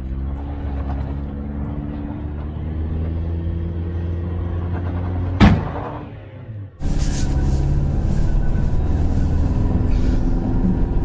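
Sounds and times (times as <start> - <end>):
loud thump: 5.4 - 6.0
truck engine running: 6.8 - 11.0.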